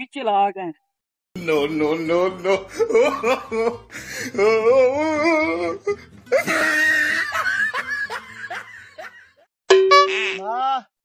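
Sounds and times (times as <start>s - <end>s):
high wavering laugh: 2.4s - 9.4s.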